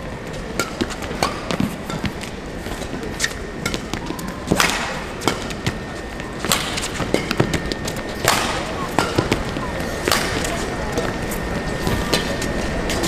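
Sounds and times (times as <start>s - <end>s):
shoes squeaking on court: 0.2s - 4.5s, 5.2s - 8.2s
racket striking shuttlecock: 0.4s - 11.1s.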